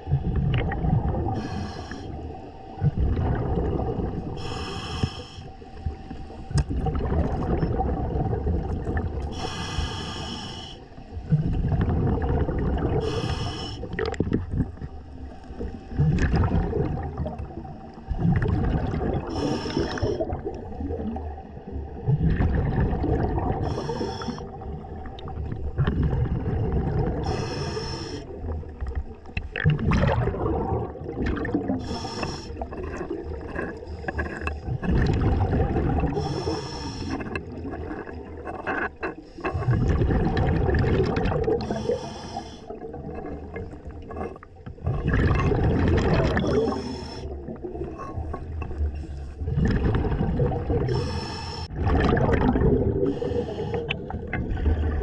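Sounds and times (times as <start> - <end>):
rush of exhaled bubbles: 0.0 - 4.5, 6.5 - 9.6, 11.1 - 55.0
diver breathing through regulator: 1.3 - 2.3, 4.3 - 5.7, 9.3 - 11.0, 12.9 - 14.2, 19.2 - 20.4, 23.5 - 24.6, 27.2 - 28.4, 31.7 - 34.8, 36.0 - 40.2, 41.5 - 44.4, 46.3 - 49.4, 50.8 - 51.8, 52.9 - 55.0.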